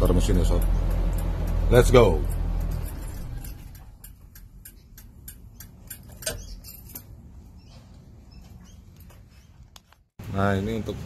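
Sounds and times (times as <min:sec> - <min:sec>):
low steady rumble: 0:00.0 - 0:07.6
turn signal flasher clicking: 0:00.2 - 0:07.1.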